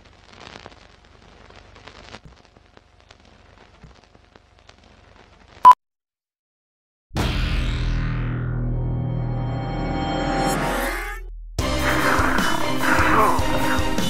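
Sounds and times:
film crackle and clicks: 0.0 - 5.6
low hum: 7.2 - 14.0.

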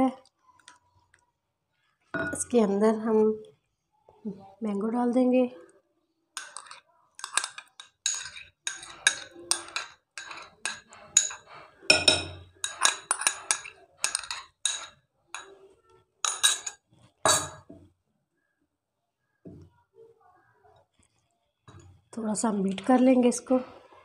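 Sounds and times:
spatula scraping a container: 6.4 - 15.6.

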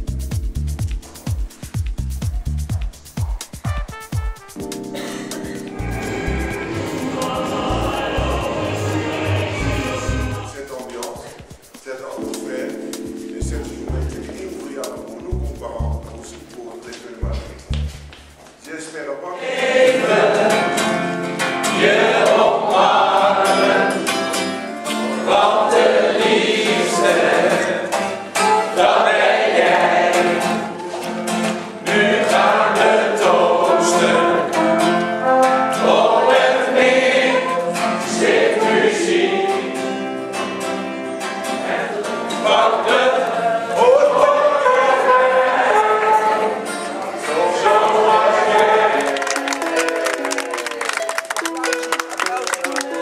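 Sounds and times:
acoustic guitar strumming: 3.7 - 18.4, 19.8 - 43.8.

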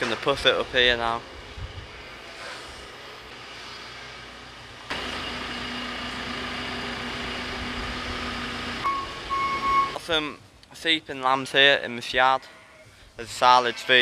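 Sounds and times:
diesel engine revving: 2.8 - 10.0
high beep: 8.8 - 10.0.

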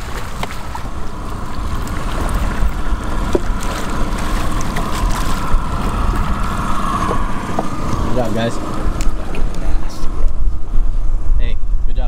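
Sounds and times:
fish splashing at surface: 0.0 - 8.1
boat engine hum: 0.0 - 12.0
wind on microphone: 0.0 - 12.0.

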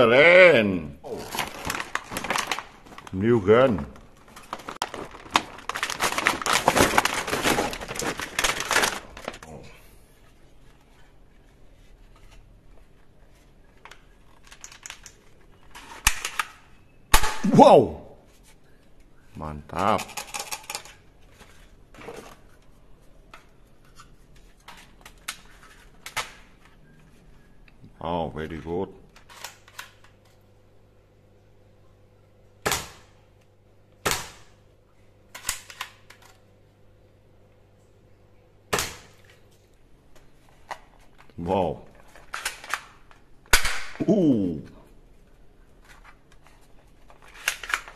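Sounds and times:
plastic toy rustling: 1.1 - 9.5, 10.2 - 16.5, 45.7 - 47.9.

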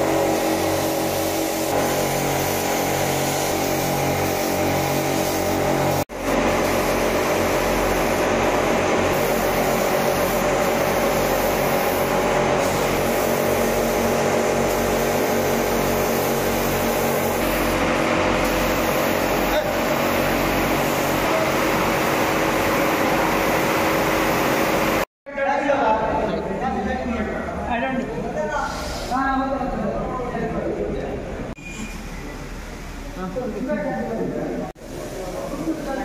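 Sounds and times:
air compressor motor humming: 0.0 - 25.0
paint spray guns hissing: 0.0 - 25.1.

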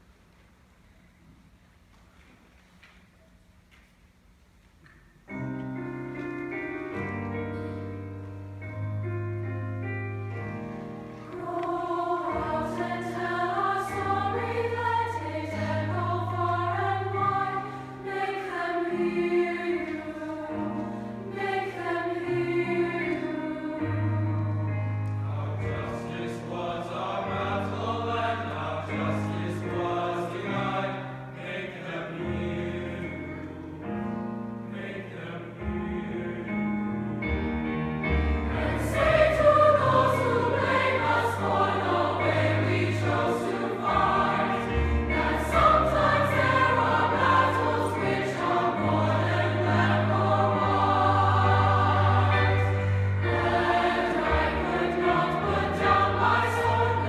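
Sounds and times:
digital piano accompaniment: 5.3 - 57.0
choir singing in parts: 10.7 - 37.4, 38.2 - 57.0.

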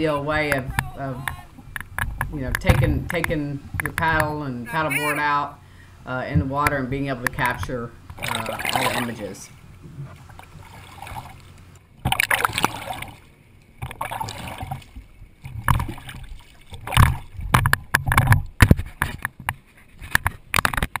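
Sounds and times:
sharp knocks and clicks: 0.4 - 4.4, 16.8 - 21.0
paddle splashing in water: 6.4 - 19.8.

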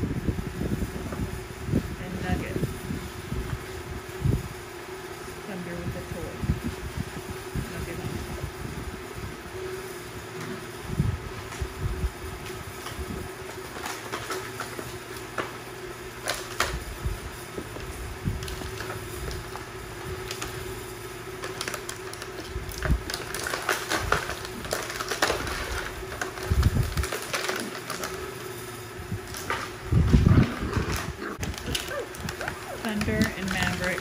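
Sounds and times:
steady low hum: 0.0 - 34.0
toys rustling: 29.2 - 34.0
puppies scuffling: 29.3 - 34.0.

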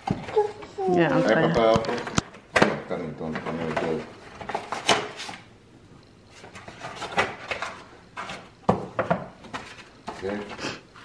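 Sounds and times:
gift packaging knocks and rustles: 0.0 - 0.5, 1.6 - 5.4, 6.4 - 10.5.

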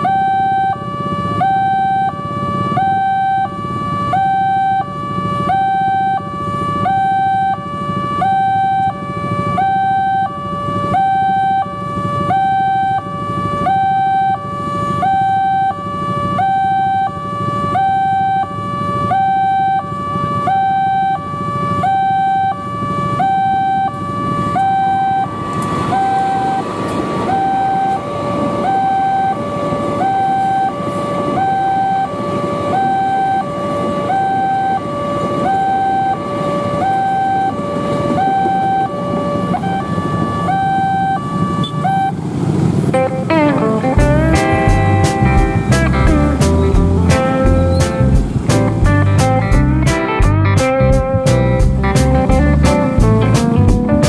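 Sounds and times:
two-tone crossing alarm chime: 0.0 - 42.3, 43.0 - 53.9
street traffic: 0.0 - 54.0
train passing rumble: 25.3 - 31.5, 36.3 - 54.0.

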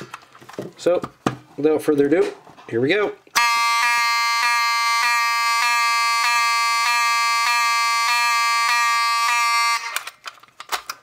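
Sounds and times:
alarm horn buzzing: 3.4 - 10.0.

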